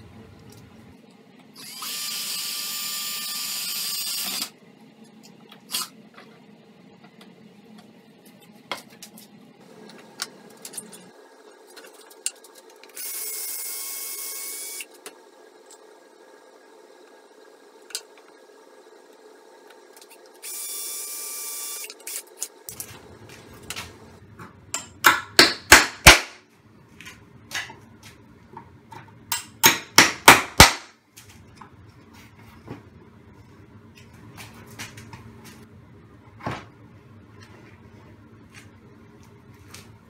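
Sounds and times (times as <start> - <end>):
hammer driving nails: 29.3 - 30.9.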